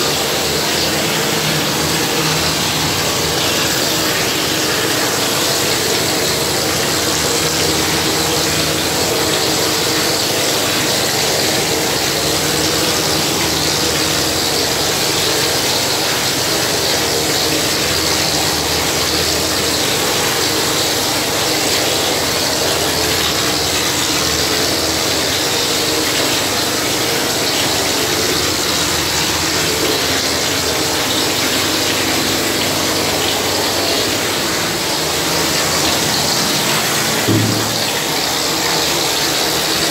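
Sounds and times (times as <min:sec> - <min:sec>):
low motor hum: 0:32.5 - 0:38.6.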